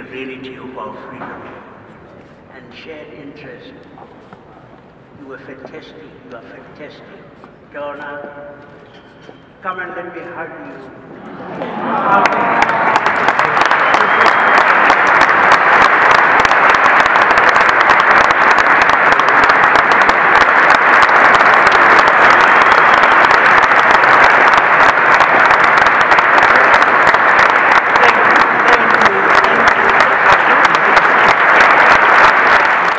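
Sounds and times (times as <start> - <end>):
audience applauding: 11.3 - 32.9.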